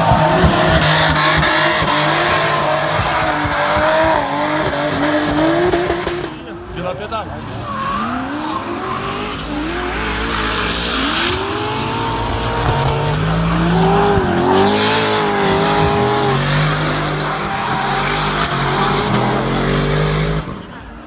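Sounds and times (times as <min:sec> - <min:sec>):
car engine revving hard: 0:00.0 - 0:20.9
tyres squealing: 0:07.6 - 0:20.2.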